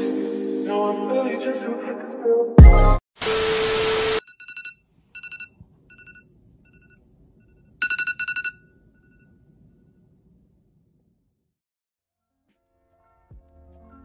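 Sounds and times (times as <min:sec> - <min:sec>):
tv static noise: 0:03.2 - 0:04.2
phone alarm beeping: 0:04.2 - 0:07.0, 0:07.8 - 0:09.4.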